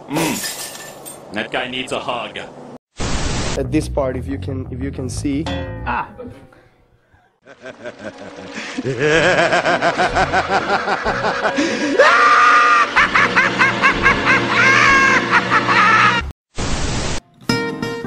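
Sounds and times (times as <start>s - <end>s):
men laughing hard: 7.4s - 16.3s
background music: 7.5s - 15.3s.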